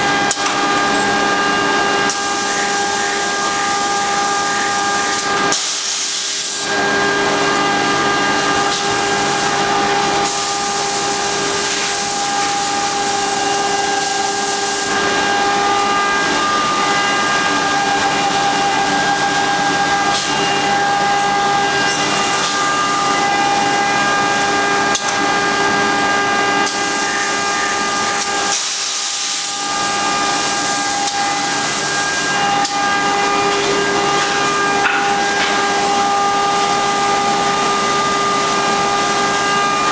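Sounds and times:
router high whine: 0.0 - 39.9
loud airy hiss: 2.1 - 6.8, 8.7 - 16.4, 26.6 - 32.7.

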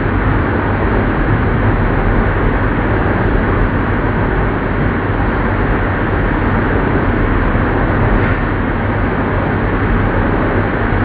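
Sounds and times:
dense machine noise: 0.0 - 11.0
low hum: 0.0 - 11.0.

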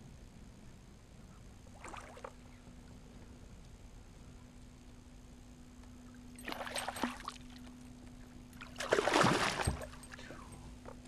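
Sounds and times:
faint steady hum: 0.0 - 11.0
fish splashing in water: 8.8 - 10.0.

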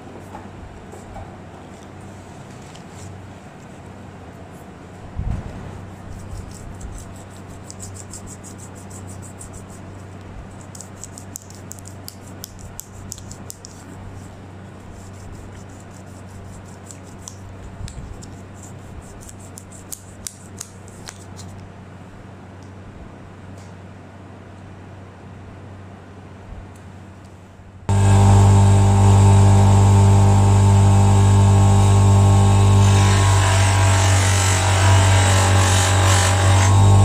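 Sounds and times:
steady low hum: 0.0 - 37.0
light scratching strokes on metal: 6.0 - 20.6.

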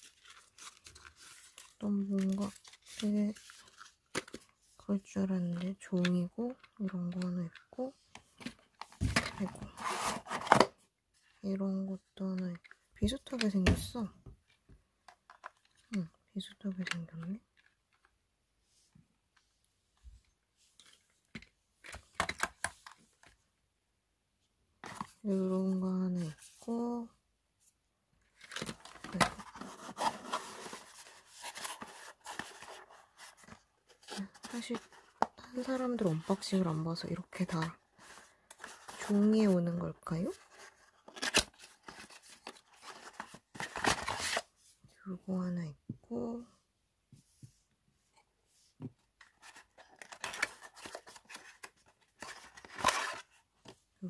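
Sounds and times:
cardboard and paper rustling: 0.0 - 4.8, 5.4 - 11.4, 24.8 - 25.4, 28.2 - 44.8, 48.7 - 53.9.

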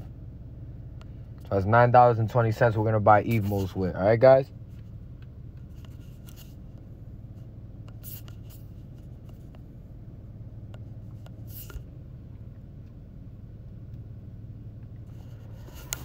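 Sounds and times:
low room hum: 0.0 - 16.0
faint scratches and ticks: 4.7 - 9.7, 10.7 - 11.9, 14.8 - 16.0.

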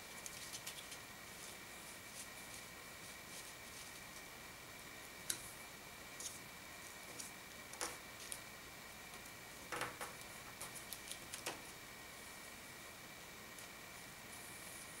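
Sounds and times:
paper folding ticks and rustles: 0.0 - 4.3, 7.0 - 8.5, 9.2 - 11.7
faint steady hiss: 0.0 - 15.0.

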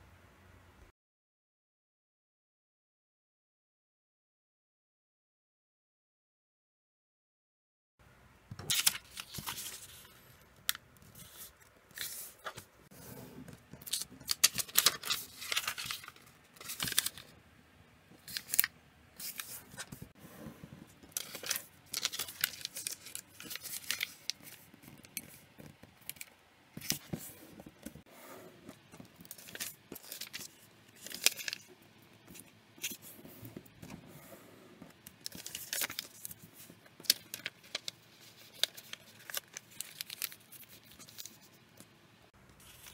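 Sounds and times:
paper rustling as it is folded: 8.7 - 17.3, 18.2 - 20.2, 21.1 - 28.1, 28.7 - 34.0, 34.9 - 42.9.

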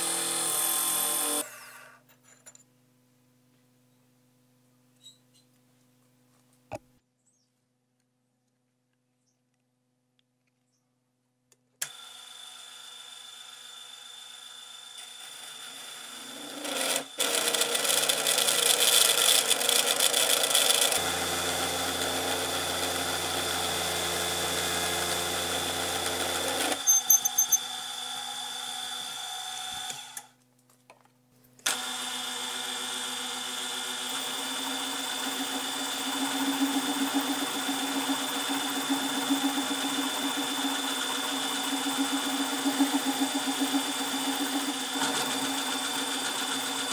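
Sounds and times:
milling machine cutting steel: 34.2 - 46.9.

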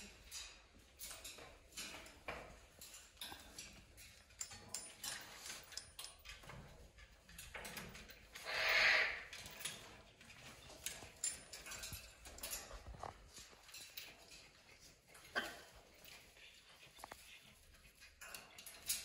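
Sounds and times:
raspy macaw squawk: 8.4 - 9.2.

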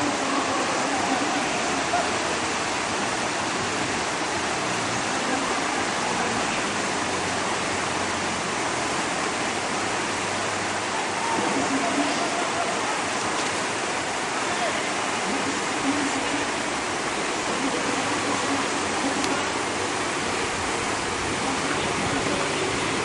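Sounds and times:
whitewater rapids roaring: 0.0 - 23.0.

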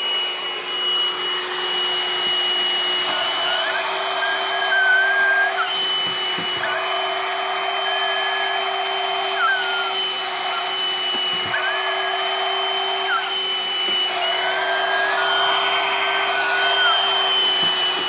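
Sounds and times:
vacuum cleaner running: 0.0 - 18.0
short sliding whistles: 3.1 - 7.0, 7.8 - 8.6, 9.3 - 12.2, 13.0 - 18.0.

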